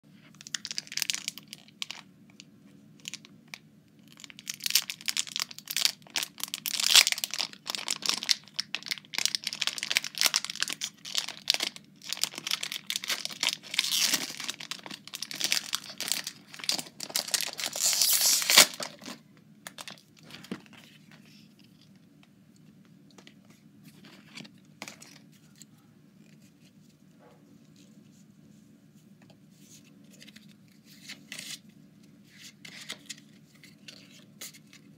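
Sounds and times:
foil wrappers tearing and crinkling: 0.4s - 2.0s, 4.1s - 20.4s.

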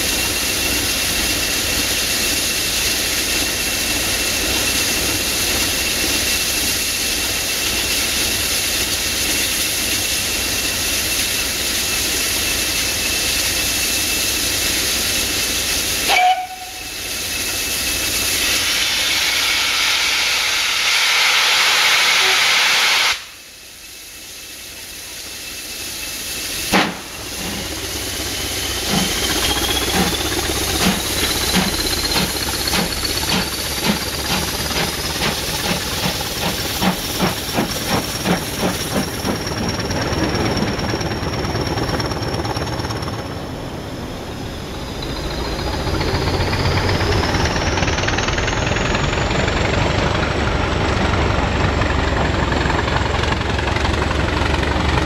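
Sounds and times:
sharp steam blast: 0.0s - 40.2s
steam hissing: 0.0s - 42.2s
steam locomotive exhaust beats: 0.0s - 55.0s
rising whine: 25.2s - 37.8s, 38.4s - 55.0s.

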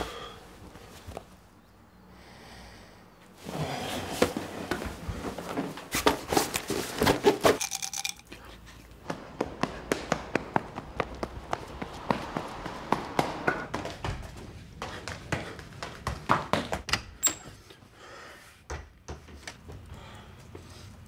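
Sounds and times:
running footsteps on pavement: 9.0s - 17.0s.

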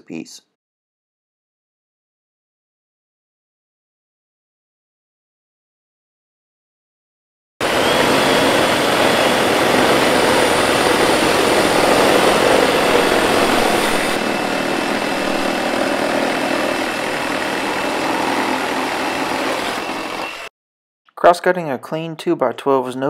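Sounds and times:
high whine: 7.6s - 20.5s
reciprocating saws cutting wood: 7.6s - 20.5s.

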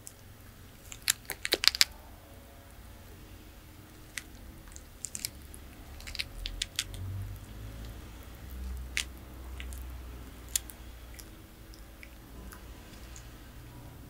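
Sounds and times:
tortoise chewing food clicks: 0.0s - 2.0s, 3.9s - 13.4s.

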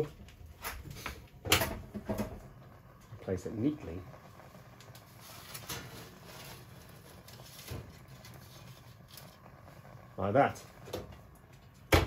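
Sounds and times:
aluminium foil crinkling: 4.8s - 9.6s.

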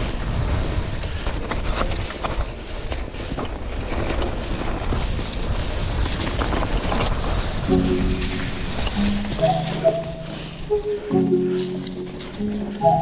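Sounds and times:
clicks and rattles of bike: 0.0s - 9.4s
mountain bike rumbling on dirt: 0.0s - 9.8s.

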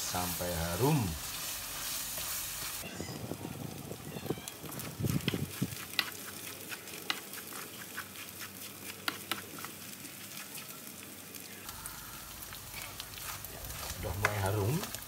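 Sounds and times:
spatula scraping wok: 0.0s - 2.8s, 4.8s - 10.7s, 12.2s - 15.0s
paste sizzling in oil: 0.0s - 3.1s, 4.5s - 15.0s.

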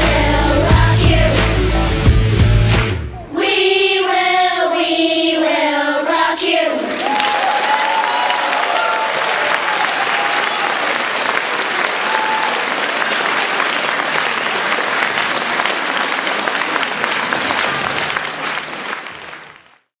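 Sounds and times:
audience applauding: 6.8s - 19.9s.

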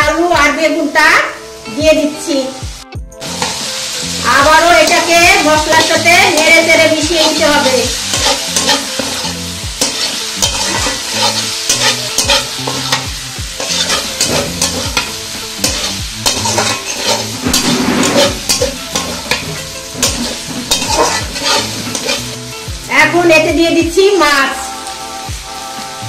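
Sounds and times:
frying sizzle: 0.0s - 26.0s
spatula scraping metal pan: 4.8s - 22.4s.

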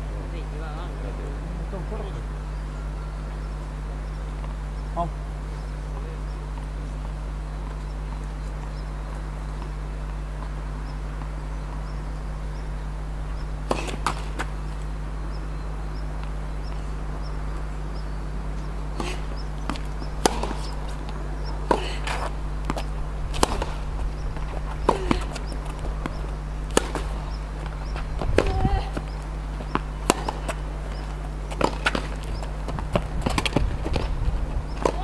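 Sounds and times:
steady low hum: 0.0s - 35.0s
tennis ball bouncing on court: 13.4s - 15.5s, 18.4s - 35.0s
tennis ball struck by rackets: 13.6s - 14.9s, 18.6s - 35.0s.

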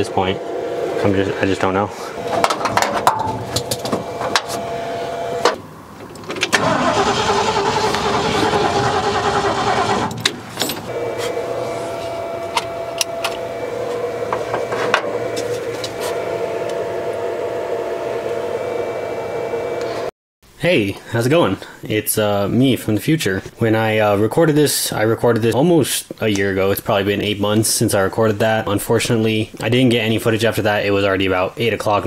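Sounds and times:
steady hum: 0.0s - 20.1s
engine cranking without starting: 6.2s - 16.1s.

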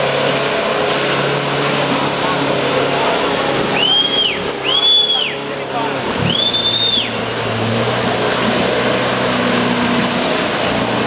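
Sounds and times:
diesel engine under load: 0.0s - 11.0s
high whistle: 3.7s - 5.4s, 6.2s - 7.2s.

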